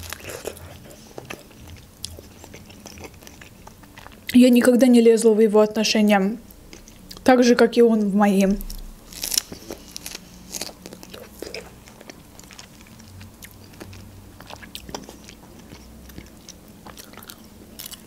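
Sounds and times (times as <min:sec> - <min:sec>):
person chewing food: 0:00.0 - 0:04.4, 0:06.6 - 0:07.2, 0:08.6 - 0:18.0.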